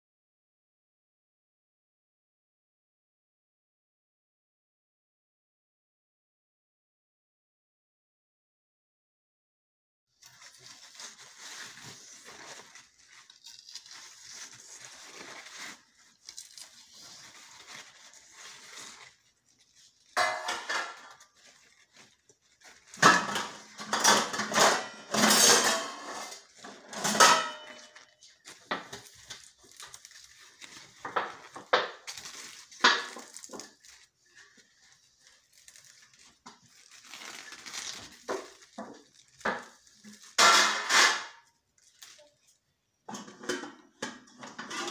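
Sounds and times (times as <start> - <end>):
leaves rustling: 10.2 - 25.7, 26.3 - 40.4, 41.8 - 42.6
plant stems snapping: 12.4 - 19.0, 28.4 - 34.0.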